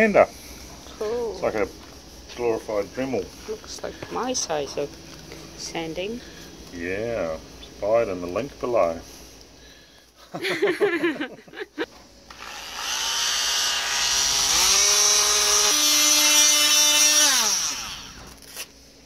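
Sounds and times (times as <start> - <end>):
oscillating multi-tool sanding: 12.3 - 18.7.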